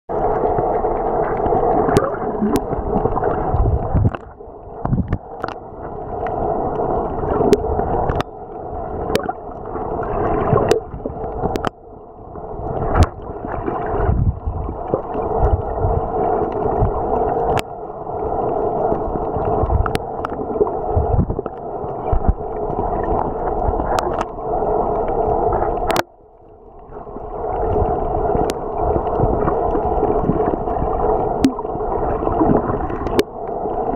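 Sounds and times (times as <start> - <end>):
underwater water rushing: 0.1 - 33.9
sharp underwater clicks: 7.4 - 8.4, 9.1 - 9.3, 10.5 - 11.8, 23.1 - 24.4, 25.8 - 26.1, 32.5 - 33.3.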